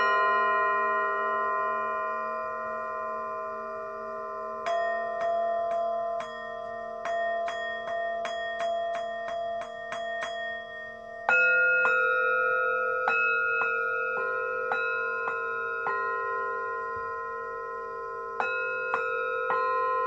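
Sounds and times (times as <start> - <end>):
singing bowls ringing: 0.0 - 20.0
light strikes on bowl: 4.6 - 16.1, 18.0 - 19.6.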